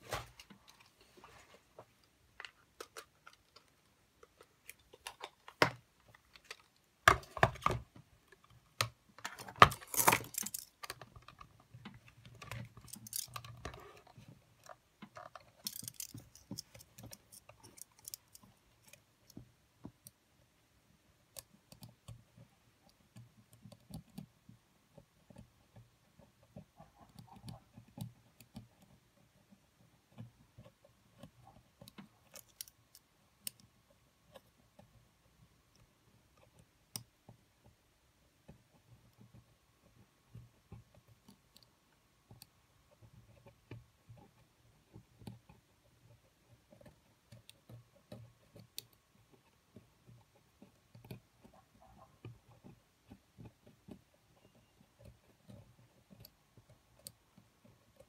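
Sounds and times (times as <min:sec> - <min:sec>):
metal tools clicking and scraping: 0:09.3 - 0:11.1, 0:12.5 - 0:14.1, 0:15.2 - 0:19.0.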